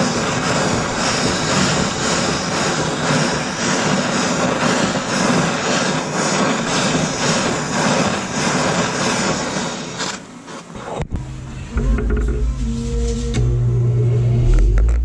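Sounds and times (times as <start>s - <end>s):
gas torch hissing: 0.0s - 11.1s.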